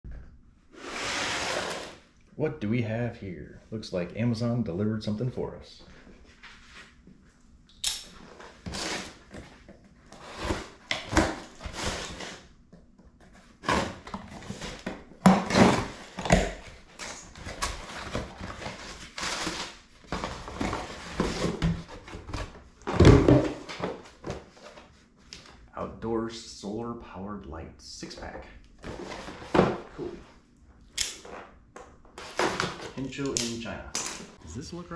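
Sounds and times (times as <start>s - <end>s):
cardboard flaps scraping: 0.8s - 2.0s.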